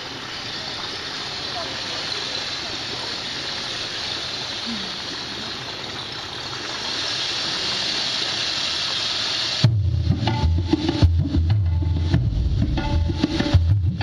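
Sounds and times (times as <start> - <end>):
fountain water running: 0.0 - 14.0
percussive music: 9.6 - 14.0.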